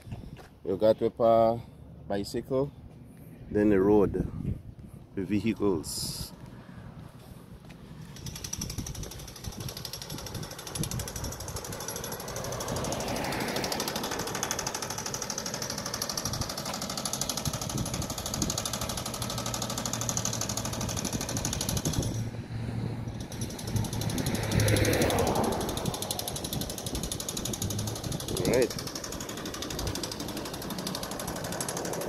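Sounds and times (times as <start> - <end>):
jackhammer breaking concrete: 8.2 - 22.3, 23.1 - 32.0.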